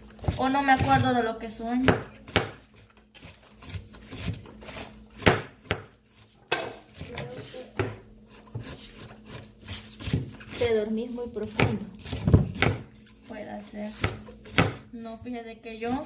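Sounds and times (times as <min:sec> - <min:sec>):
knife chopping on wooden board: 0:01.8 - 0:10.8, 0:11.4 - 0:12.9, 0:13.6 - 0:14.9.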